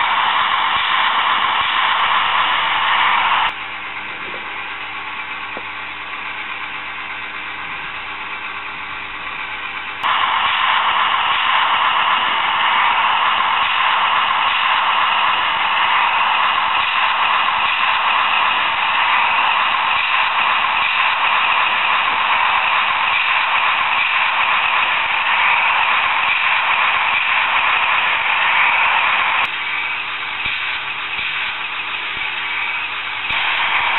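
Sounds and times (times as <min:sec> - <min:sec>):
thin hissy machine drone: 0:00.0 - 0:05.6, 0:09.8 - 0:33.9
model diesel engine sound from speaker: 0:00.3 - 0:33.9.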